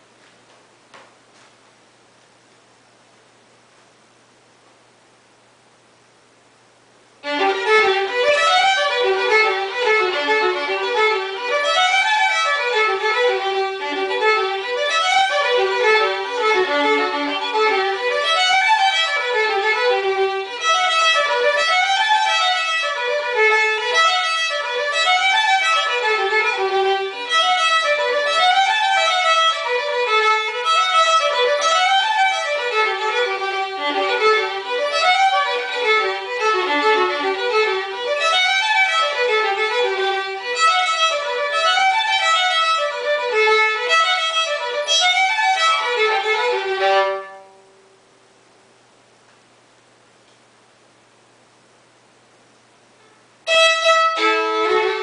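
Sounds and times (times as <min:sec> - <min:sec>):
solo fiddle tune: 0:07.2 - 0:47.7, 0:53.4 - 0:55.0.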